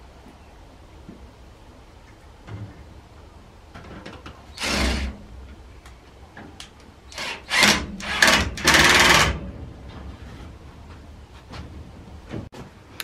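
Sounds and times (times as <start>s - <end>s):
power tool bursts on wooden door: 4.6s - 5.2s, 7.1s - 9.4s.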